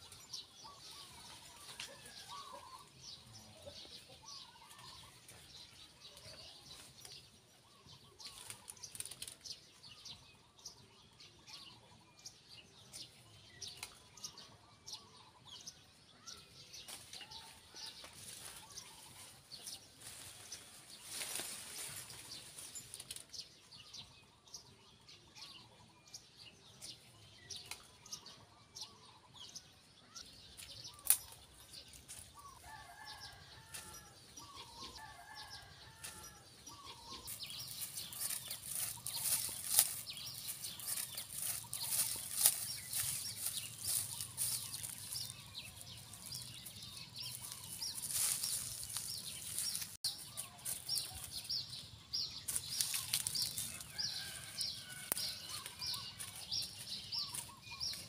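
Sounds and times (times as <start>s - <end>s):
leaves and twigs rustling: 0.0s - 2.9s, 8.2s - 9.7s, 16.8s - 23.5s, 30.5s - 58.0s
birds chirping: 0.0s - 58.0s
bare feet walking through dry grass: 16.8s - 23.0s, 30.5s - 58.0s.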